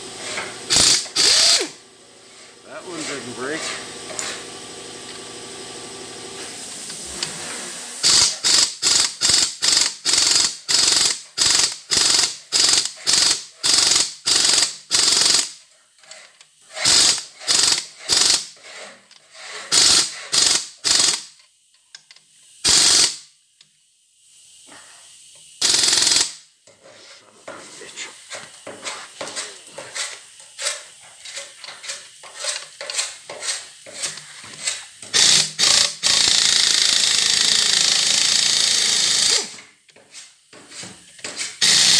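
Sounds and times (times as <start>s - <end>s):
impact wrench hammering: 0.7s - 1.8s, 8.0s - 15.6s, 16.8s - 18.6s, 25.6s - 26.4s, 28.6s - 39.7s.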